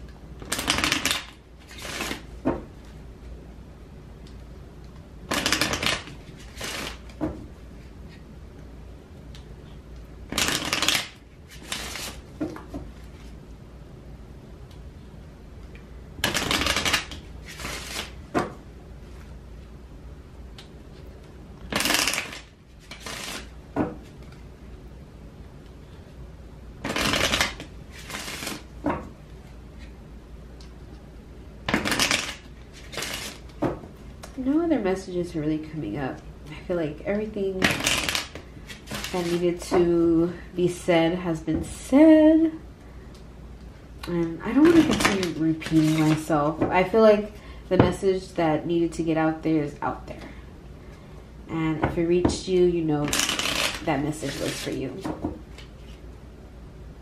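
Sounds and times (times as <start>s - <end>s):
cards being shuffled: 0.4s - 2.3s, 5.3s - 7.2s, 10.3s - 13.3s, 16.2s - 18.2s, 21.6s - 24.4s, 26.8s - 28.7s, 31.7s - 33.6s, 37.6s - 39.7s, 44.5s - 46.3s, 53.0s - 56.0s.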